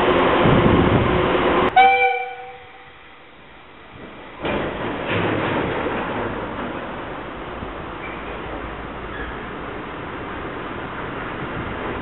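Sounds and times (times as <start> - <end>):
train horn blast: 1.7 - 2.9.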